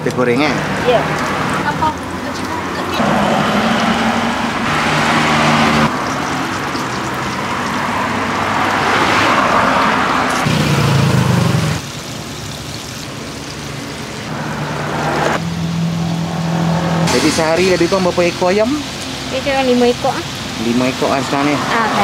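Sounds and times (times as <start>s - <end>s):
vehicle engine hum: 0.0s - 22.0s
chicken deep-frying in oil: 5.9s - 8.8s, 10.5s - 14.3s, 17.1s - 21.8s.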